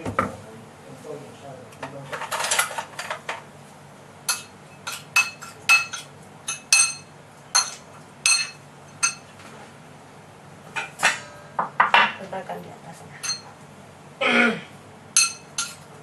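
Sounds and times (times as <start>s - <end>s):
spoon clinking in ceramic bowl: 4.3s - 9.3s, 13.2s - 13.5s, 15.2s - 15.8s.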